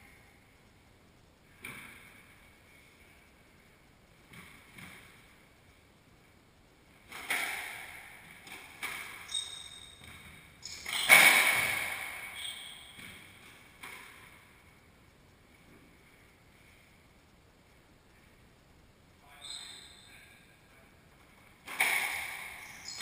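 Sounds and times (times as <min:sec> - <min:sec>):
racket striking squash ball: 0:07.1 - 0:14.3, 0:21.6 - 0:23.0
sneakers squeaking on wooden floor: 0:08.8 - 0:13.5, 0:19.4 - 0:20.1, 0:22.5 - 0:23.0
ball smacking walls: 0:21.6 - 0:22.7.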